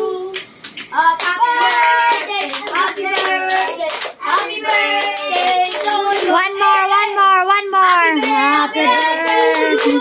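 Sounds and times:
hands clapping: 0.3s - 6.9s, 8.2s - 10.0s
children singing: 8.2s - 10.0s.

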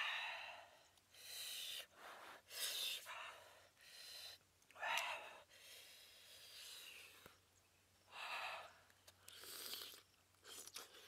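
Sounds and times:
man breathing heavily: 0.0s - 7.4s, 8.0s - 9.0s.

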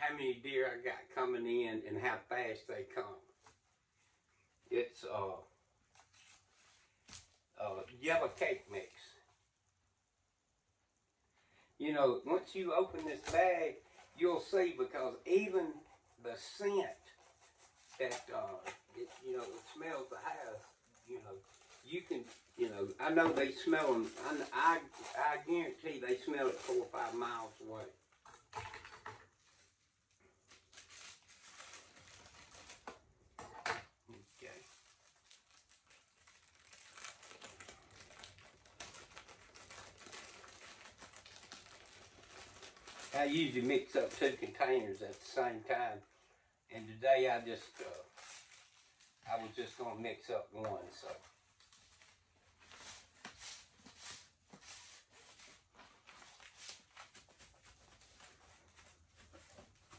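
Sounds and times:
plastic bag crinkling: 16.8s - 28.8s, 30.5s - 33.1s, 34.1s - 45.3s, 47.6s - 49.6s, 50.8s - 59.9s.

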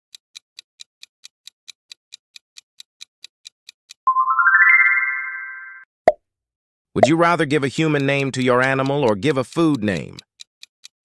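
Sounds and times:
clock ticking: 0.1s - 4.0s, 7.0s - 11.0s
rising chime ringing: 4.1s - 5.9s.

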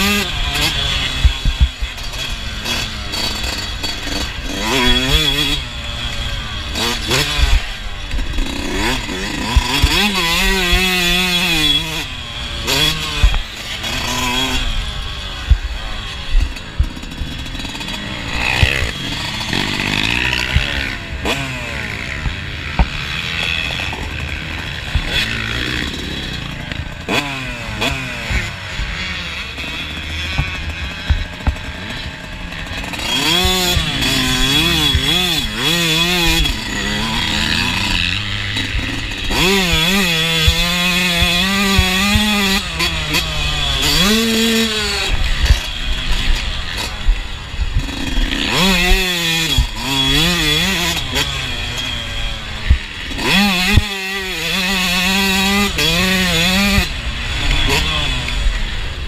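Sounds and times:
dirt bike engine revving: 0.0s - 59.0s
sharp knocks: 30.3s - 31.8s.

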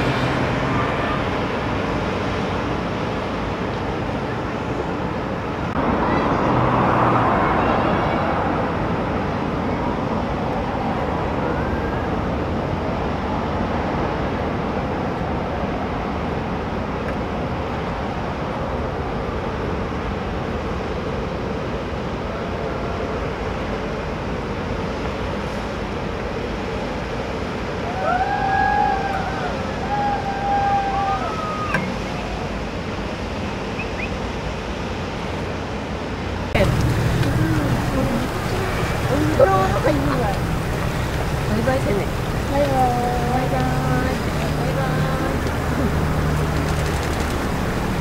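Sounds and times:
vehicle passing rush: 0.0s - 3.6s, 5.6s - 12.6s, 36.4s - 48.0s
road traffic noise: 0.0s - 48.0s.

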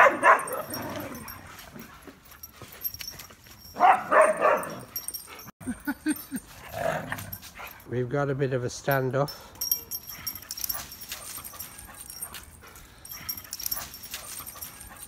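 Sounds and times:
dogs barking: 0.0s - 1.9s, 3.6s - 5.3s.

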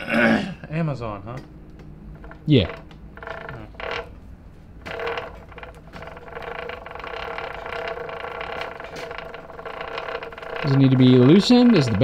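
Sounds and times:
drive chain whirring and rattling: 1.7s - 12.0s.

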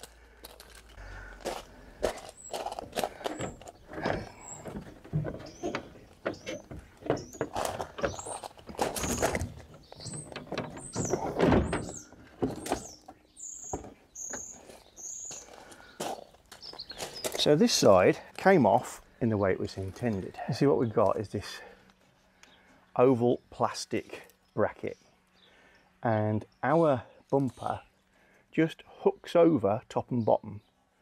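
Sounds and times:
plastic bumper knocking and scraping: 2.6s - 14.5s.

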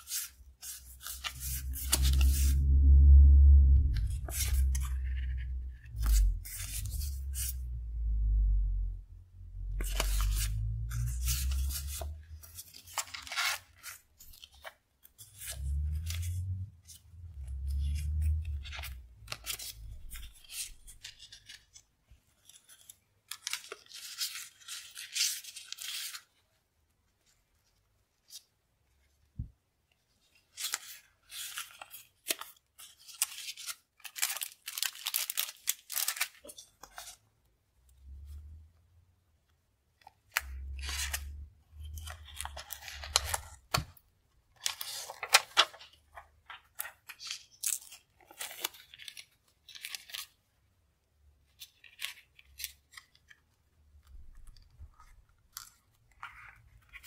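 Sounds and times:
soft low bumps: 1.2s - 10.0s
paper and plastic crinkling: 9.8s - 15.8s, 30.3s - 37.2s, 40.0s - 50.5s, 51.5s - 57.0s.

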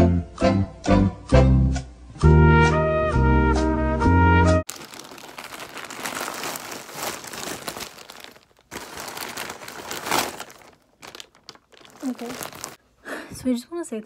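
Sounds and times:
plastic packaging crinkling: 4.7s - 12.8s.

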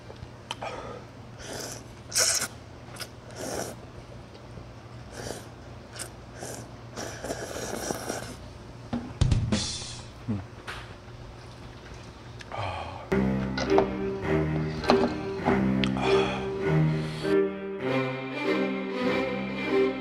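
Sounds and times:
person slurping noodles: 1.4s - 3.8s, 5.1s - 8.4s.

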